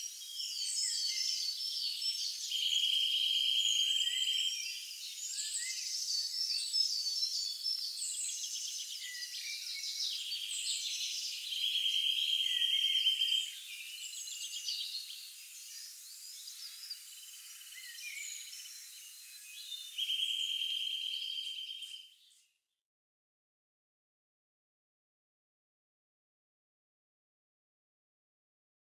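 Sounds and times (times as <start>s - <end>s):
songbirds singing: 0.0s - 22.6s.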